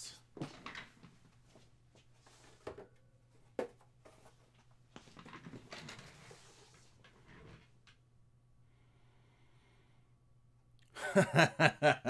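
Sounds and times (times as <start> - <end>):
low room hum: 0.0 - 12.0
soft rustling and shuffling: 0.3 - 7.8.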